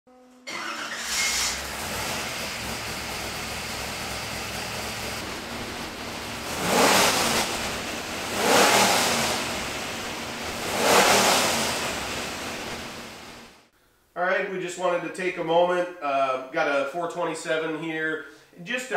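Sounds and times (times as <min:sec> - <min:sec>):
car engine idling and revving: 0:00.5 - 0:13.6.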